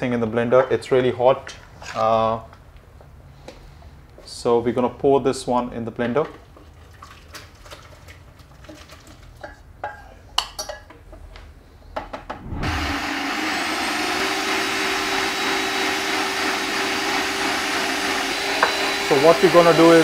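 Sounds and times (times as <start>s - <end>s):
electric blender whirring: 12.6s - 20.0s.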